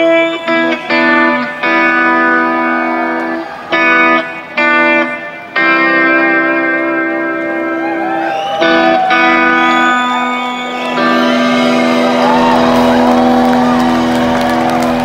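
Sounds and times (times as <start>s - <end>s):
electric guitar chords: 0.0s - 15.0s
audience whistling and cheering: 7.6s - 15.0s.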